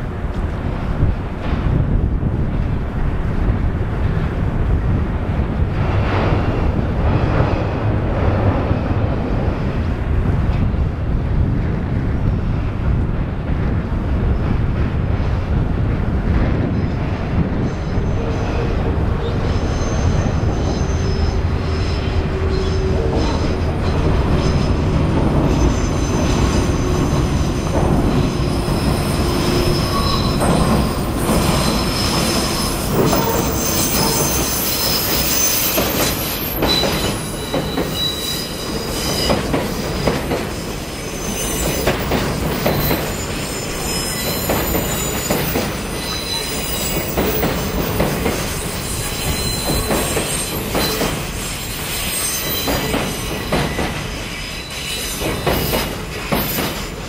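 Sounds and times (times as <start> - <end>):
diesel locomotive engine rumbling: 0.0 - 57.0
high wheel squeal: 17.9 - 56.8
wagons clacking over rail joints: 22.4 - 40.6, 52.1 - 57.0.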